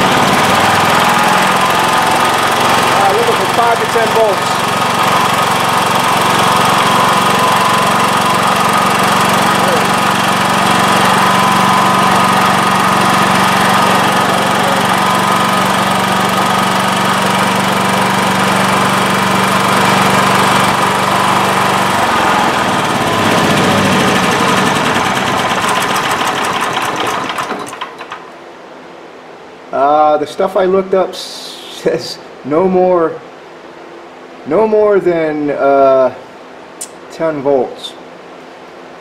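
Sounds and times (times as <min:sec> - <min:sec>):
generator engine running: 0:00.0 - 0:28.6.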